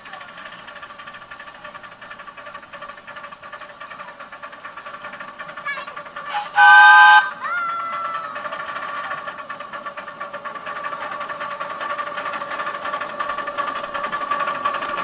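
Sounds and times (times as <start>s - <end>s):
small locomotive engine ticking: 0.0s - 15.0s
chord-like whistle blast: 6.3s - 7.4s
steam whistle toot: 6.3s - 7.5s.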